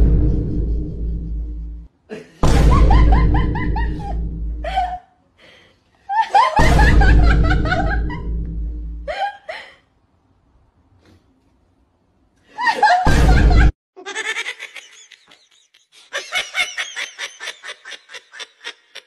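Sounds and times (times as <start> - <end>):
deep booming bass: 0.0 - 4.8, 6.6 - 9.1, 13.1 - 13.7
comic laughter sound effect: 2.1 - 5.0, 6.1 - 8.4, 12.6 - 19.0.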